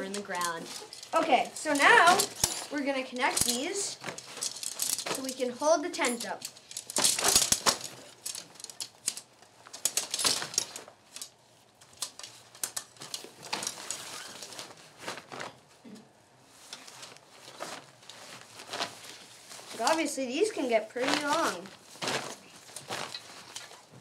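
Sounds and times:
tent poles clicking and rattling: 0.0s - 15.6s, 21.0s - 24.0s.

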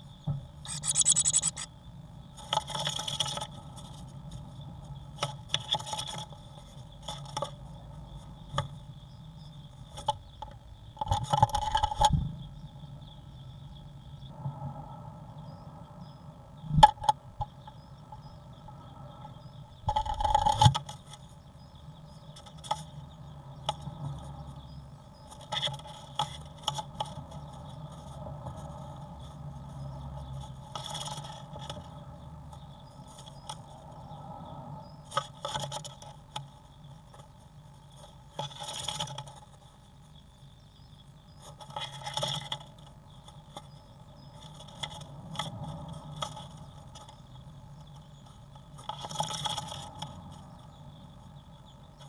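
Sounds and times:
steady hum: 0.6s - 1.7s.

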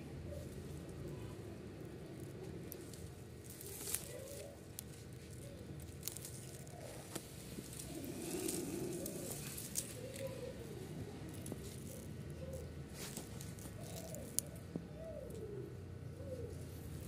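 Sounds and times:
pigeon cooing: 6.4s - 12.8s, 13.6s - 17.0s.

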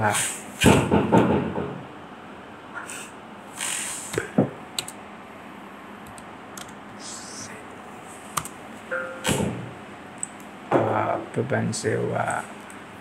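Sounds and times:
computer keyboard keystrokes: 4.1s - 5.0s, 6.0s - 6.8s
low background hiss: 5.2s - 13.0s.

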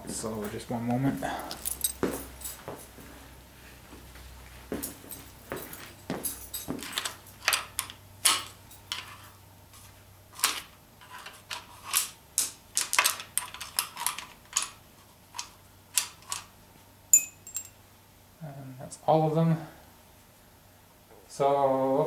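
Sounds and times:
sharp metallic clink: 17.1s - 17.8s.

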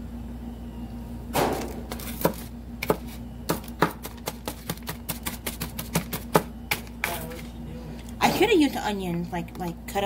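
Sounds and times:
knife chopping onion: 1.9s - 7.2s.

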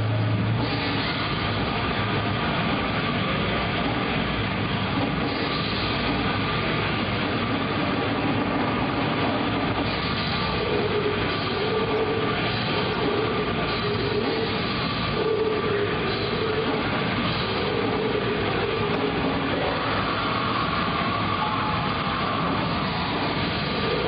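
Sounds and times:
distorted guitars: 0.0s - 24.0s
drums: 0.0s - 24.0s.

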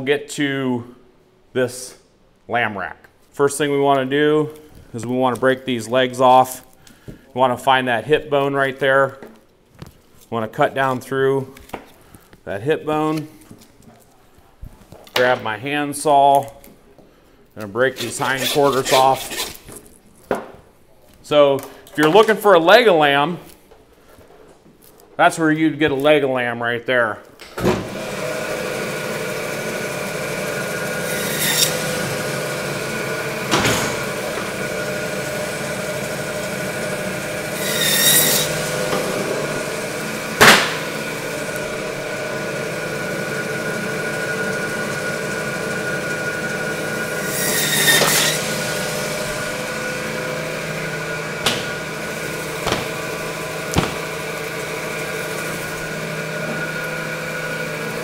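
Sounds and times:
band saw cutting bone: 18.0s - 19.6s, 27.8s - 57.0s
sharp knocks: 40.4s - 40.9s, 51.4s - 51.8s, 52.6s - 53.0s, 53.7s - 54.1s.

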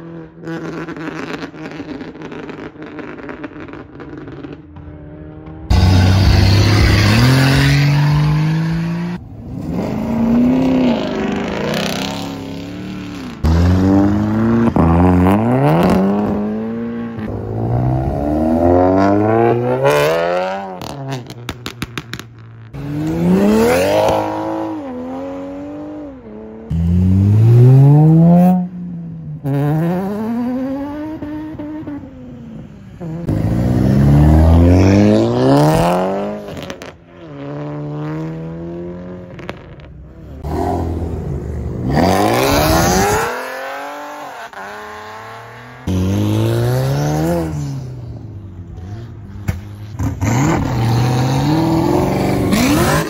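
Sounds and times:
cars accelerating hard: 0.0s - 22.2s, 22.8s - 32.1s, 33.0s - 53.0s
sharp exhaust pops: 20.8s - 22.8s.

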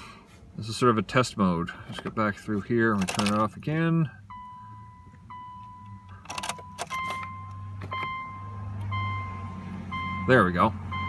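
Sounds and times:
keys jingling in ignition: 2.9s - 3.4s, 5.6s - 8.2s
dashboard warning chime: 4.3s - 11.0s.

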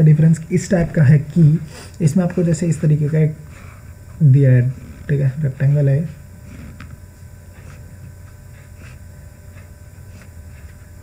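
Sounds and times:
steady low hum: 0.0s - 11.0s
stylus scratching on tablet: 1.7s - 3.4s, 4.6s - 11.0s.

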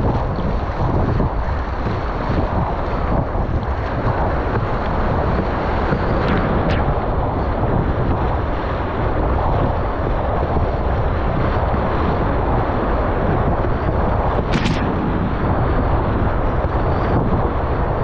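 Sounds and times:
wind buffeting microphone: 0.0s - 18.0s
sharp clicks: 14.5s - 15.2s.

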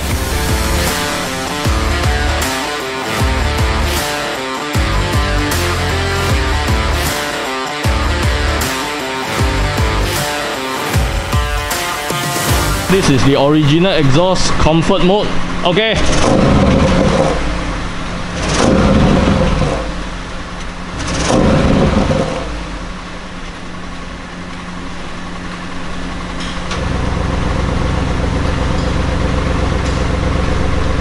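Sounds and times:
car engine revving and idling: 0.0s - 31.0s.

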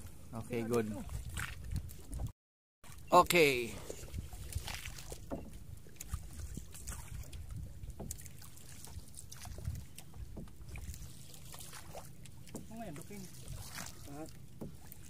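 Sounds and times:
paddle splashing in water: 0.5s - 15.0s.

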